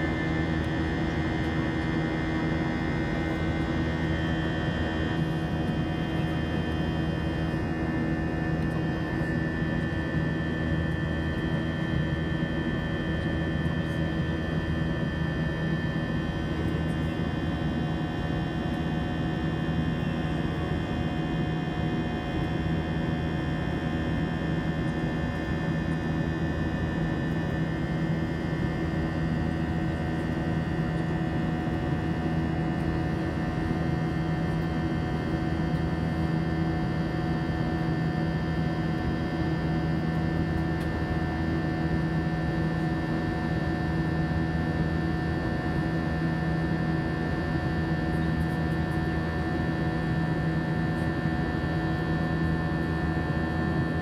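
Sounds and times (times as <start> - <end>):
jet engine cabin drone: 0.0 - 54.0.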